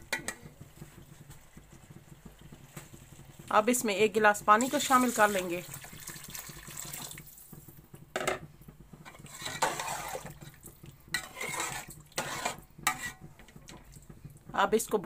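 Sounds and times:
ladle scraping metal pot: 9.0 - 14.1.

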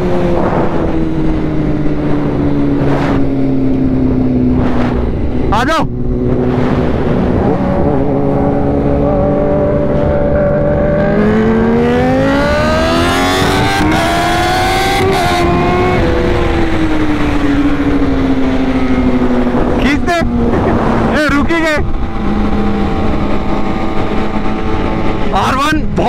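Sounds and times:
motorcycle engine accelerating: 0.0 - 26.0
wind rush: 0.0 - 26.0.

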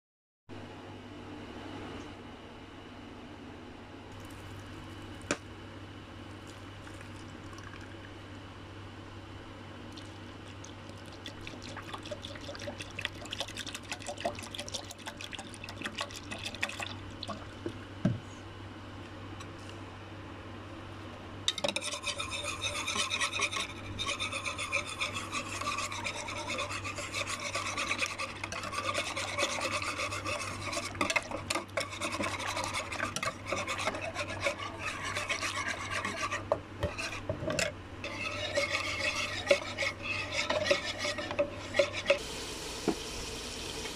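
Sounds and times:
low steady hum: 0.5 - 43.9
wire whisk scraping in a bowl: 21.5 - 42.2.

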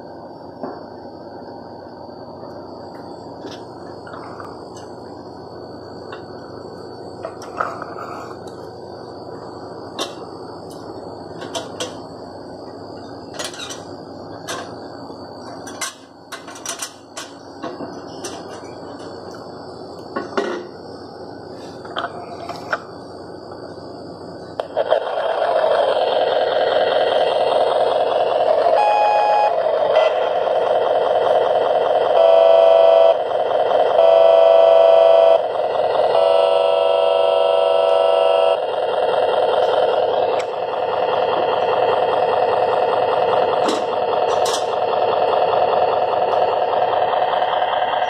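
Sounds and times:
toy truck electronic engine drone: 2.4 - 12.1, 24.5 - 48.0
electronic horn: 28.7 - 30.3, 32.2 - 33.2, 34.0 - 35.4, 36.1 - 38.6.

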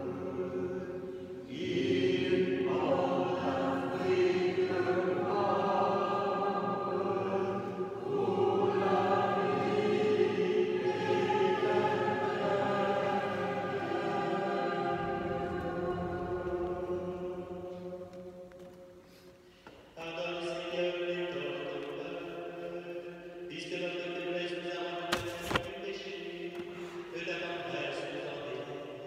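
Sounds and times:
choir singing slow chant: 0.0 - 18.5.

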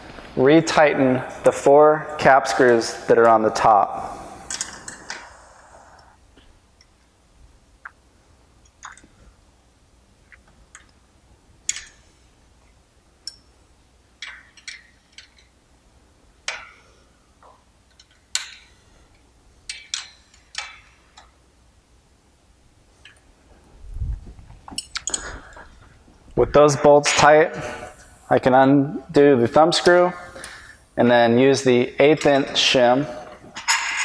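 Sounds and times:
wrench clicks on metal: 17.9 - 18.7, 19.7 - 21.3.

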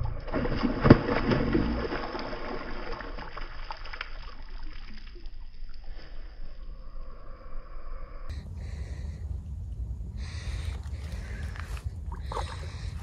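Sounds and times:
fish splashing in water: 0.0 - 5.7, 12.0 - 13.0.

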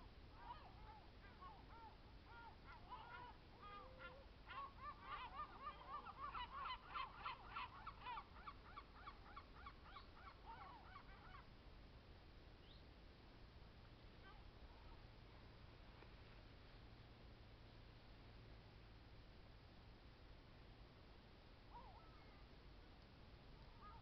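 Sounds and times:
geese honking: 0.0 - 11.5.

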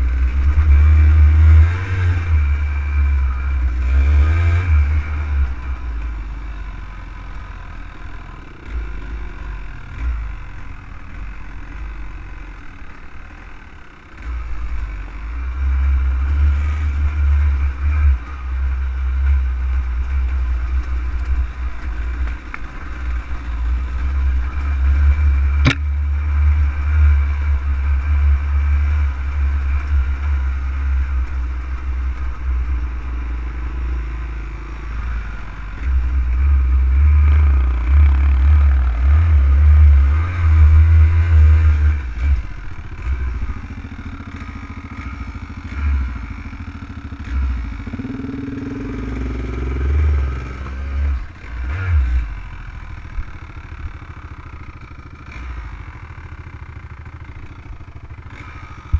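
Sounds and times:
off-road vehicle engine rumbling: 0.0 - 58.9
sharp click: 25.6 - 25.9.

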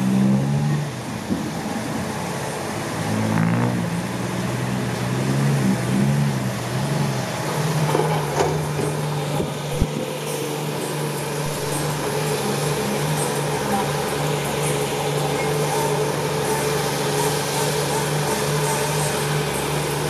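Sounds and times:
diesel engine under load: 0.0 - 20.0.

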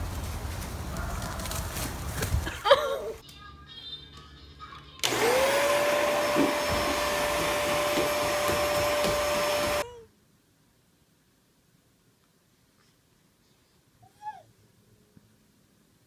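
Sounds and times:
vacuum cleaner motor whine: 5.0 - 9.8.

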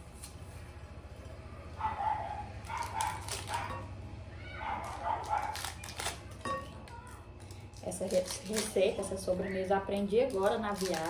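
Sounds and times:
plastic wrappers crinkling: 2.6 - 3.7, 4.7 - 11.0.

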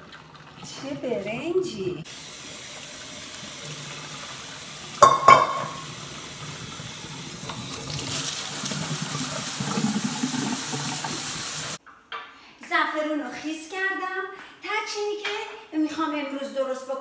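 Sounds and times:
tap running into sink: 4.9 - 6.1.

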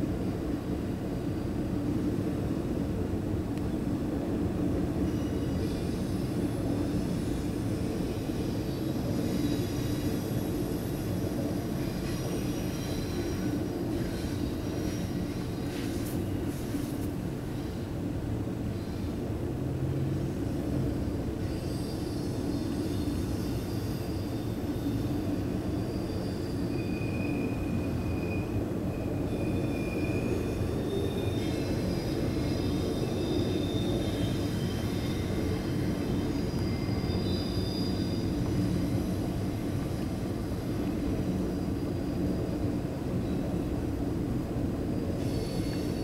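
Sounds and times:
freight train rolling past: 0.0 - 46.0
high-pitched wheel squeals: 5.1 - 16.1, 21.4 - 39.7, 45.0 - 46.0.

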